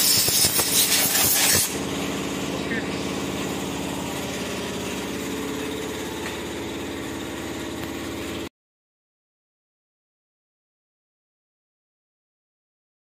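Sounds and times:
motorcycle engine idling: 1.7s - 8.5s.

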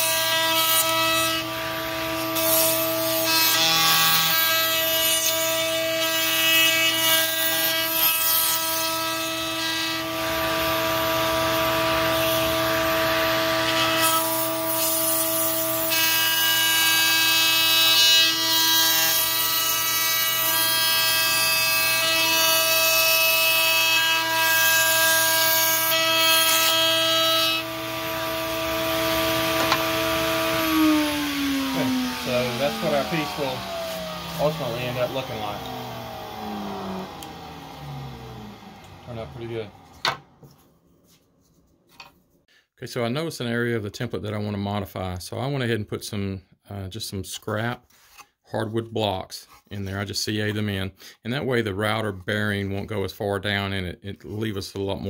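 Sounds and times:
router bit cutting wood: 0.0s - 40.6s
router motor whine: 0.2s - 5.4s, 25.2s - 40.6s.

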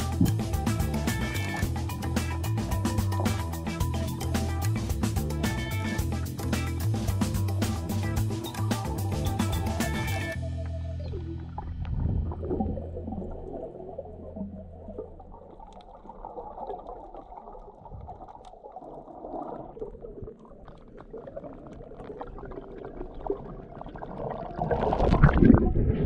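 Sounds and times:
faint bubbling: 11.2s - 26.0s
muffled underwater water rush: 11.2s - 26.0s
water splashing and gurgling: 11.4s - 26.0s.

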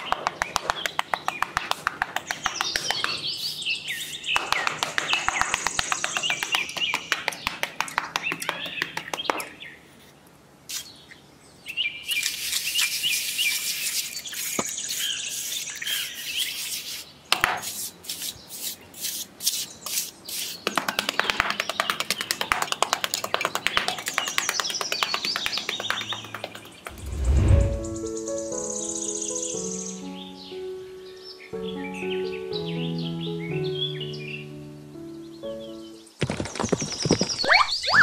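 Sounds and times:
birds chirping: 0.0s - 10.0s, 19.7s - 36.1s.

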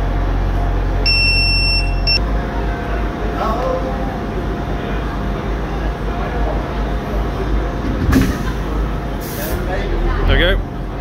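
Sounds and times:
diesel train engine idling: 0.0s - 11.0s
high electronic beep: 1.0s - 2.2s.

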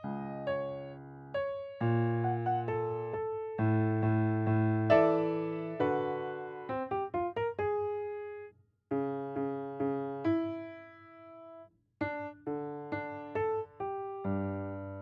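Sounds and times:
solo piano: 0.0s - 15.0s.

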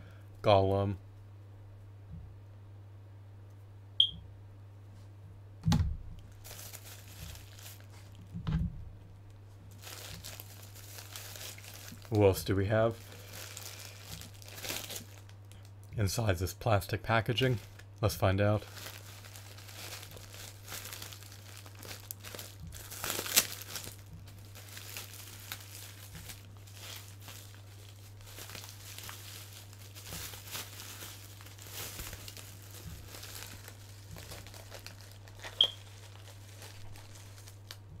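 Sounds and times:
low electrical hum: 0.0s - 38.0s
plastic packaging crinkling: 6.3s - 8.3s, 9.7s - 15.7s, 17.1s - 17.9s, 18.5s - 38.0s.

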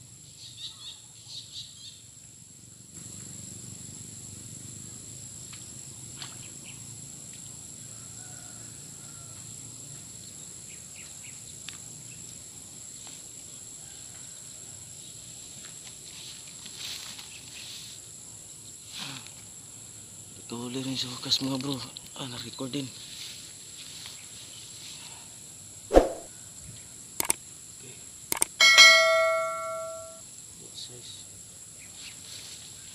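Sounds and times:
insects chirring: 0.2s - 32.9s.

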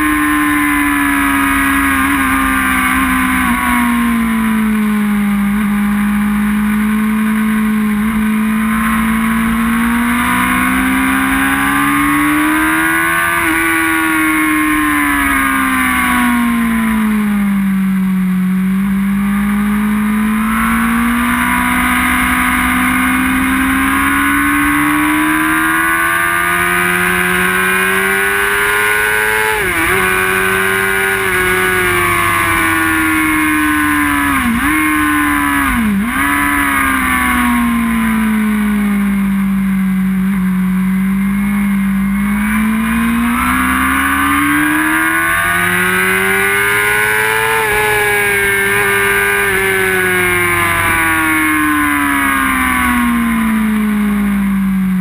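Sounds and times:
sport bike engine revving: 0.0s - 55.0s.

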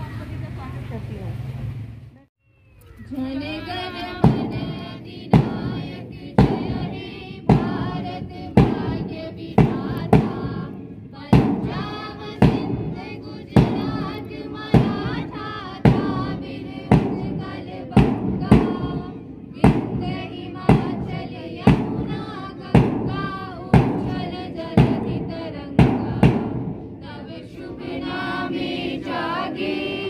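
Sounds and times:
group singing in unison: 3.2s - 30.0s
bass drum beats: 4.1s - 26.9s.

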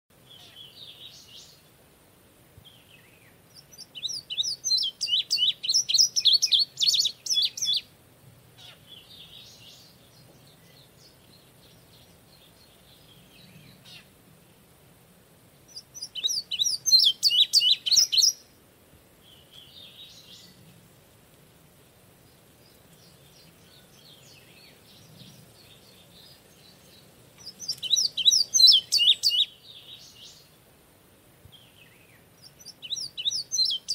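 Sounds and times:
faint bird song: 0.1s - 33.9s
bunting singing: 2.7s - 7.9s, 15.7s - 18.5s, 22.2s - 30.5s, 31.6s - 33.9s.

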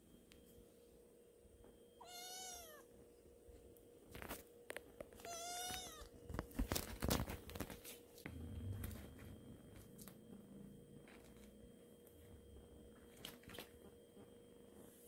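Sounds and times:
kitten meowing: 2.0s - 2.9s, 5.2s - 6.1s.

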